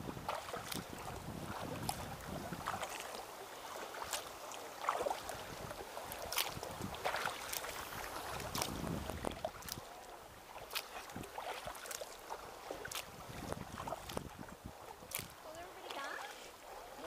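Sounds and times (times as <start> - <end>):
paddle splashing in water: 0.0 - 17.0
soft wash of water: 0.0 - 17.0
water dripping off paddle: 0.3 - 17.0.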